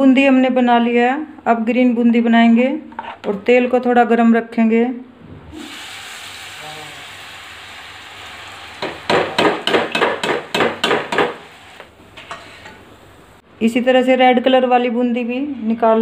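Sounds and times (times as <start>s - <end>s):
hot oil sizzling in a pan: 5.6s - 13.1s.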